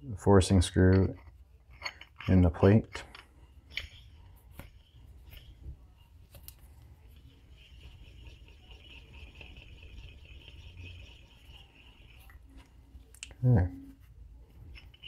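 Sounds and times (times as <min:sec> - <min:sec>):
screw rubbing in plate: 0:00.7 - 0:06.0, 0:07.0 - 0:13.1, 0:14.6 - 0:15.0.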